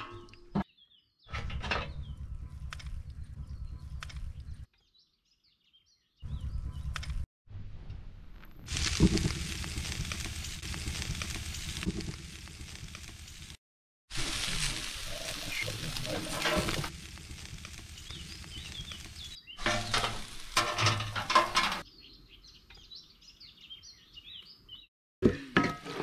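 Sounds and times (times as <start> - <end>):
small birds chirping: 0.1 - 7.2, 15.1 - 20.4, 21.8 - 24.9
food sizzling over fire: 8.4 - 21.9.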